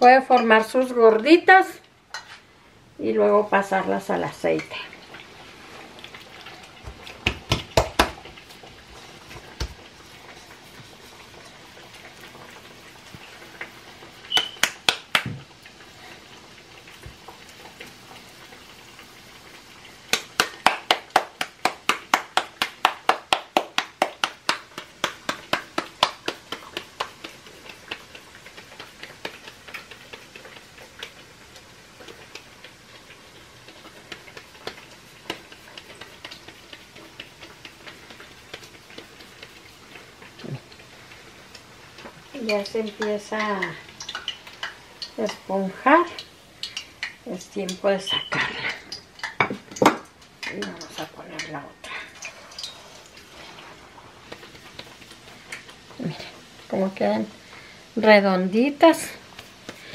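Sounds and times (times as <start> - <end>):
hands patting dough: 6.8 - 11.2, 14.3 - 15.5, 20.1 - 40.8, 58.8 - 59.9.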